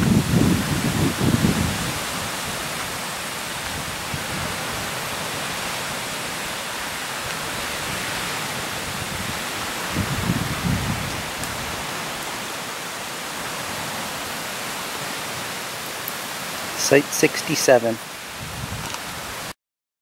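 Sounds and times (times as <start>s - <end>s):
wind buffeting on microphone: 0.0s - 12.4s, 18.3s - 19.5s
wind hissing through trees: 0.0s - 19.6s.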